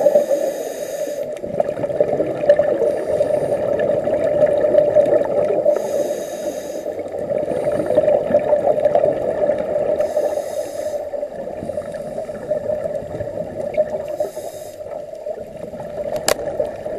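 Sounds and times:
diver breathing through regulator: 0.0s - 1.4s, 2.8s - 4.0s, 5.6s - 8.2s, 10.0s - 12.6s, 14.0s - 15.1s
underwater bubbling: 0.0s - 16.9s.

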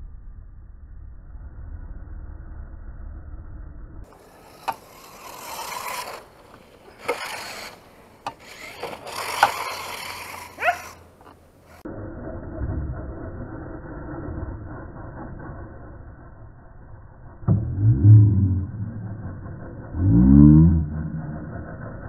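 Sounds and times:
rising and falling whine: 0.0s - 22.0s
toy car motor whirring: 4.1s - 11.9s.

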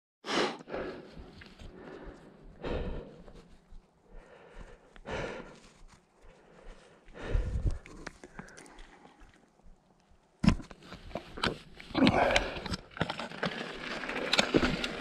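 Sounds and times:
person breathing hard: 0.3s - 9.4s, 11.9s - 12.8s
rustling trail noise: 0.7s - 15.0s.

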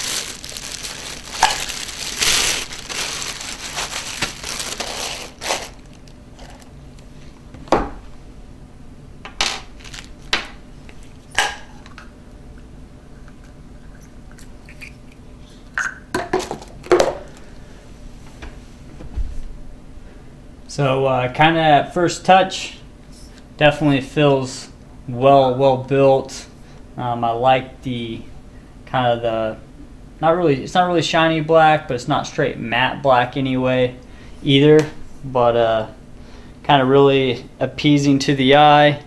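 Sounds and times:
plastic wrapping crinkling: 0.0s - 6.8s, 9.7s - 11.1s.

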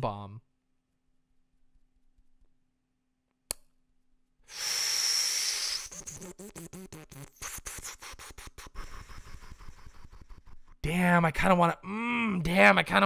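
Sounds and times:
loud breathy hiss: 4.5s - 6.1s
wavering choppy voiced sound: 5.8s - 11.2s.

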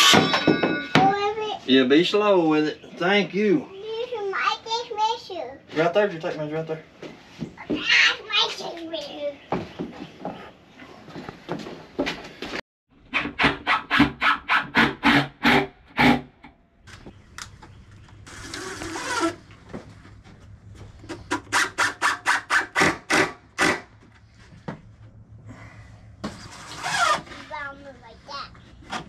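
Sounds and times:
drill driving screws: 18.3s - 19.4s.

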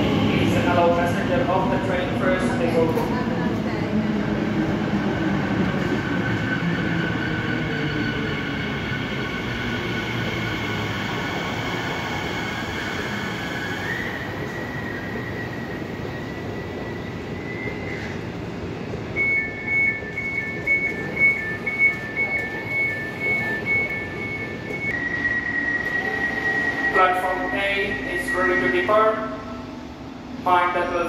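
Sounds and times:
train door alert beeping: 19.0s - 29.2s.

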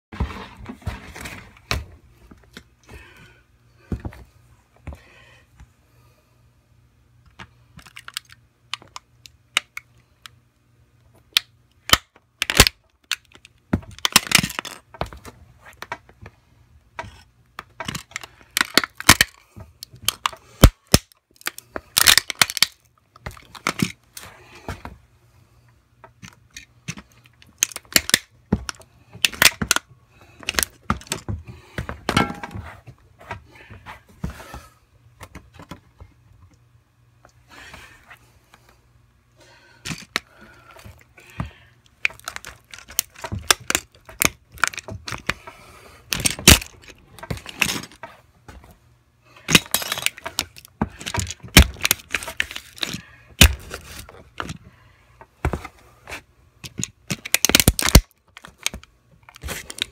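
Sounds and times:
plastic toy cracking underfoot: 7.8s - 9.9s, 11.3s - 16.1s, 17.0s - 24.0s, 26.0s - 31.9s, 41.9s - 45.4s, 46.1s - 48.0s, 49.5s - 54.6s, 56.6s - 59.9s.

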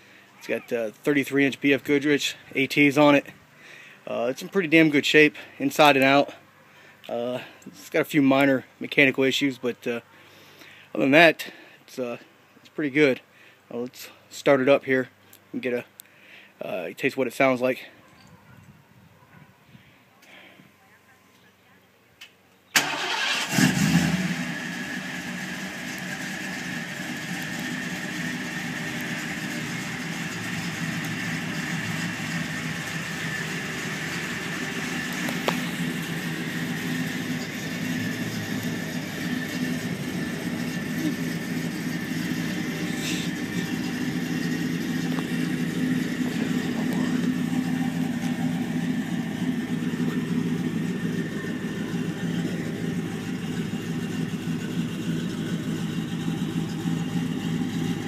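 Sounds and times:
car engine idling: 22.8s - 58.0s.

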